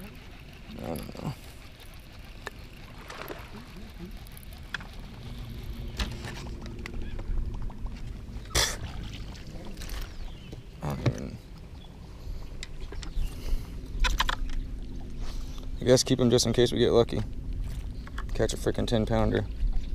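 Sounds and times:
wind rumble on microphone: 4.5s - 19.9s.

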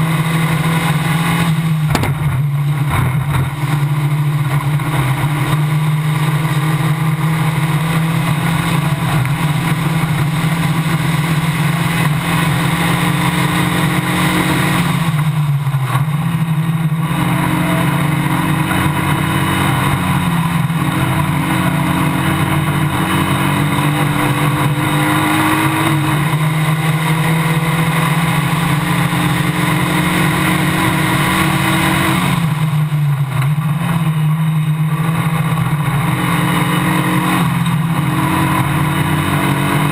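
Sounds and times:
race car engine at high revs: 0.0s - 39.9s
wind and road rush: 0.0s - 39.9s.

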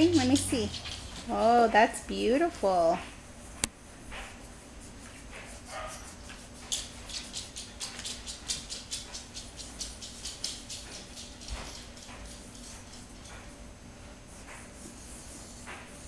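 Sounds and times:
crayon scribbling on paper: 14.3s - 16.0s.

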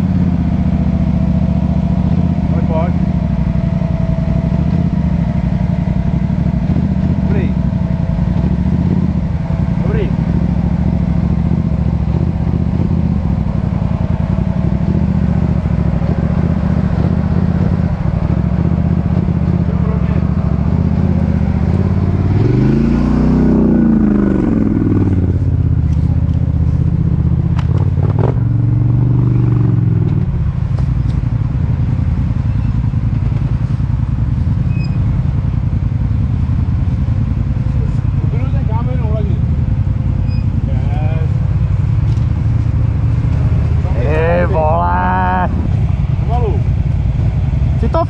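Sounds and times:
atv engine revving: 0.0s - 48.0s.

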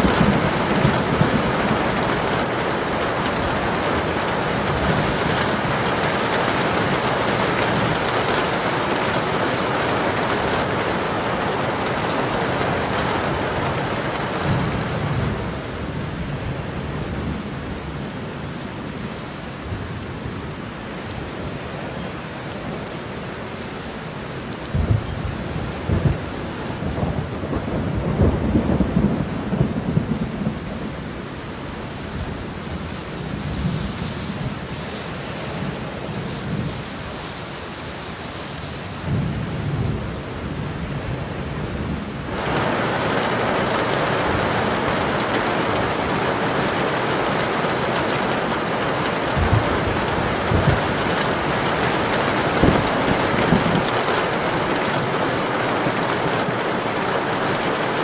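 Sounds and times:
thunder rumbling: 0.0s - 17.4s, 24.6s - 31.0s, 39.0s - 58.0s
heavy rain: 0.0s - 58.0s.

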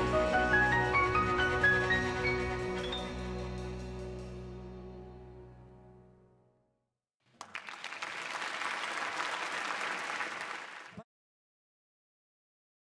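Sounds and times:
audience applause: 7.3s - 11.0s.

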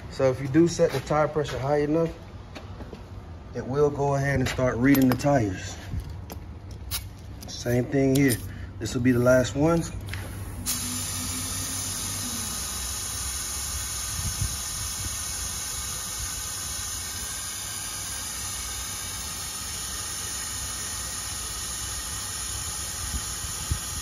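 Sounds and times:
air hissing out of tire: 10.1s - 24.0s.

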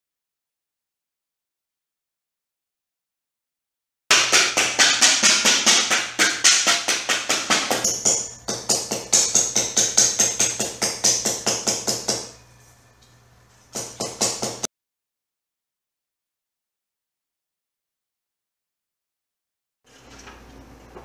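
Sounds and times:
hammer striking metal sheet: 4.1s - 12.4s.

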